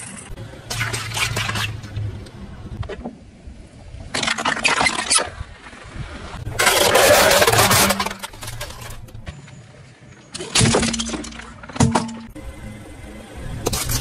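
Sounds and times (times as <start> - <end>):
car tyre crushing toys: 6.4 - 9.3.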